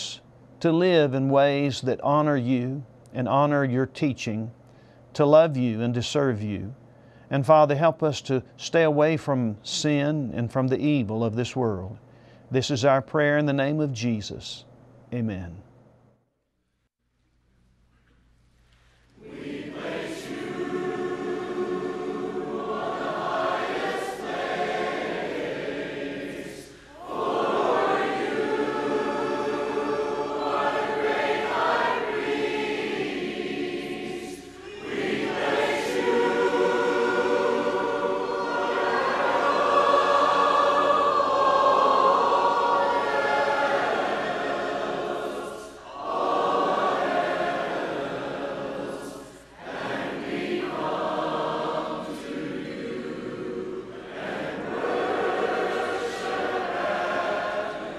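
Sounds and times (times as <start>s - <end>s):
congregation singing a hymn: 19.2s - 57.9s.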